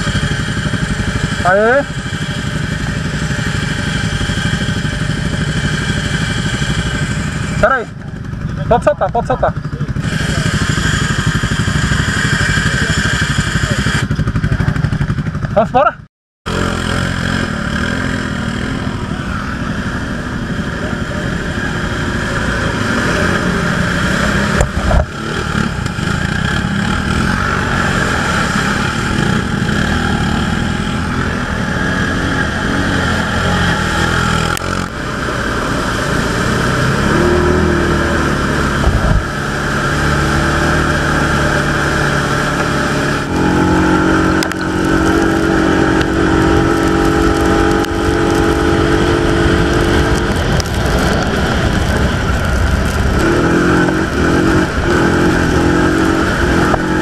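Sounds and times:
off-road vehicle engine running: 0.0 - 57.0
rush of driving noise: 0.0 - 57.0.

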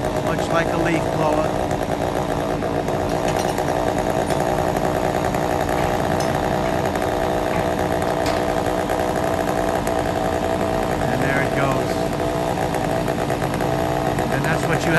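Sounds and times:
engine running steadily: 0.0 - 14.9.

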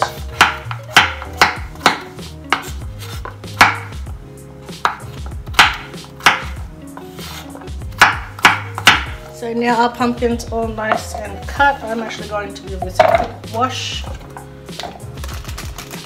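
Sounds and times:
knife chopping on wooden board: 0.0 - 4.0, 4.8 - 9.2.

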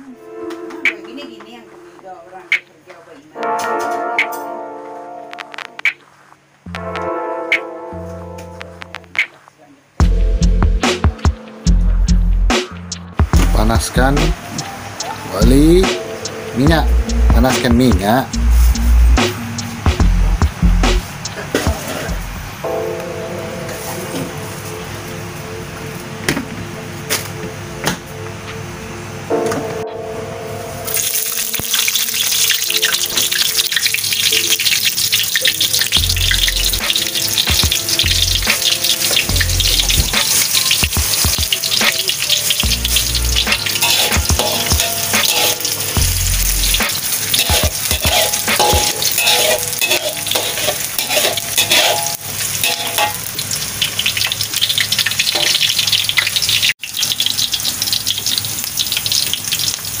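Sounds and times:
onions sizzling in oil: 18.0 - 19.9, 30.8 - 60.0
spatula stirring in wok: 36.2 - 55.8.

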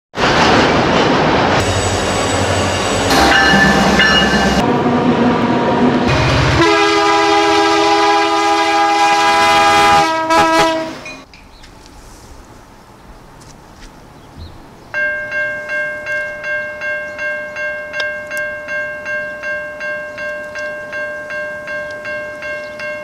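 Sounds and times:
freight train clattering on rails: 0.2 - 4.7
locomotive air horn: 3.1 - 4.8, 6.1 - 11.2.

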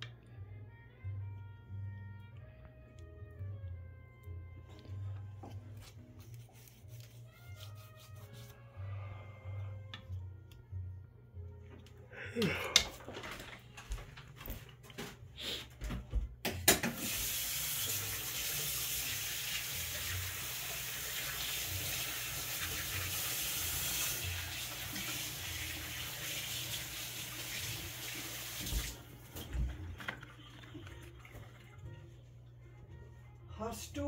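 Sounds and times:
kitchen tap running: 16.6 - 31.8.

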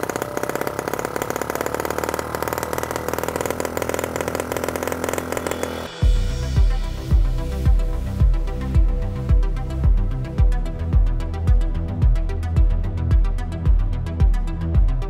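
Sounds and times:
small engine running: 0.0 - 13.3
electronic music with heavy bass: 5.0 - 15.0.

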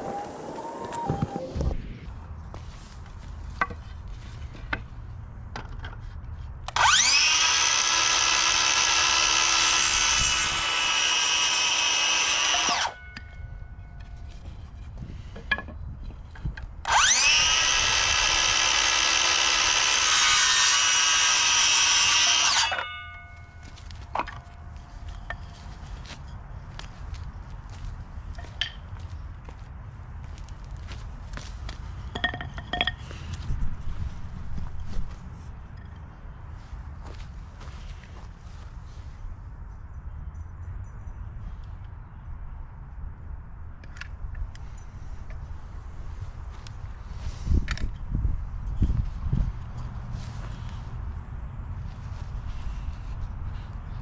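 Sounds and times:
circular saw cutting wood: 6.7 - 13.1, 16.9 - 23.2.

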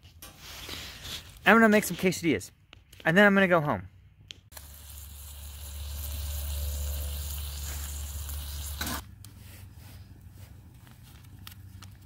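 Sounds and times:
meat sizzling in a tin: 4.5 - 9.0
stove low rumble: 4.5 - 11.7.

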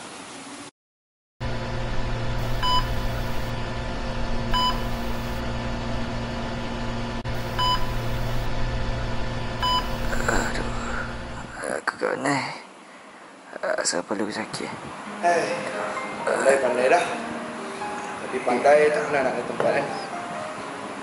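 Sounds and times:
electrical hum with low drone: 1.4 - 11.9
short high electronic beeps: 2.4 - 3.5, 4.5 - 5.4, 7.4 - 8.5, 9.6 - 10.1.

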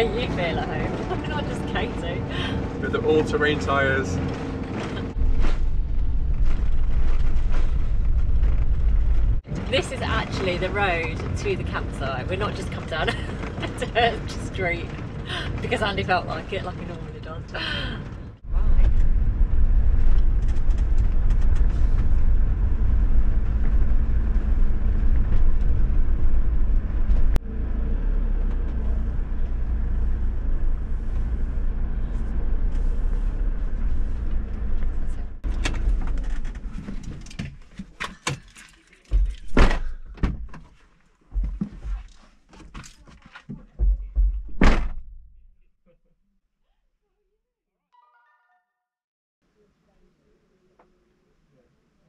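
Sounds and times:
vehicle rumbling over rough track: 0.0 - 38.0
thunks and knocks: 39.1 - 40.7, 41.3 - 45.3.

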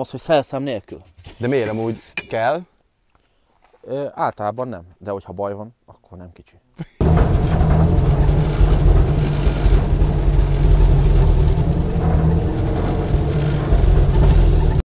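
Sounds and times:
off-road vehicle engine rumble: 7.0 - 14.8.

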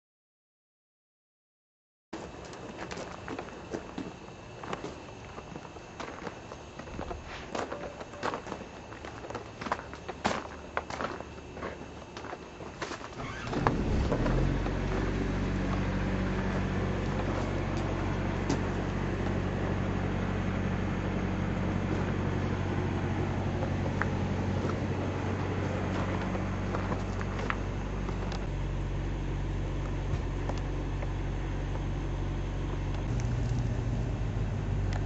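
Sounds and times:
diesel engine starting and idling: 13.2 - 35.0.

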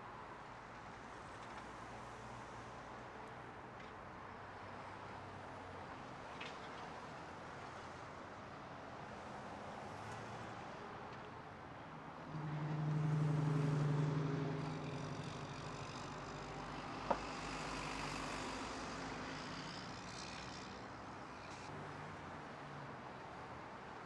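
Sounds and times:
steady traffic noise: 0.0 - 24.0
vehicle passing: 12.4 - 19.7.

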